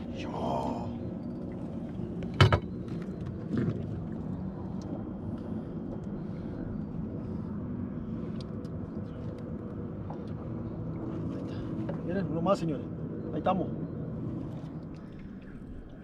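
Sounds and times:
boat motor humming: 0.0s - 16.0s.

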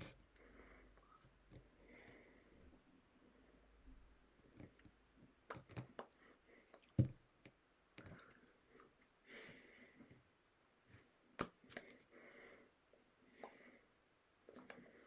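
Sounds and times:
faint breaths: 0.0s - 4.0s, 11.8s - 14.0s
soft mouth noises: 14.4s - 15.0s.

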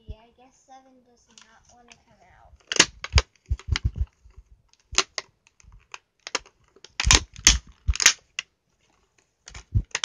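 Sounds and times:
plastic packaging clicking: 2.6s - 10.0s.

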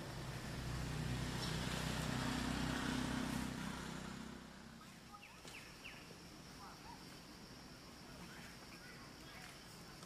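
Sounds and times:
vehicle engine running: 0.0s - 5.1s.

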